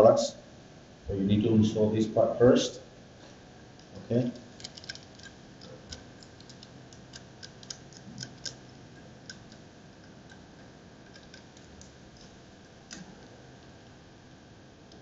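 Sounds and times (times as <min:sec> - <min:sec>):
small plastic clicks: 0:04.6 - 0:10.4.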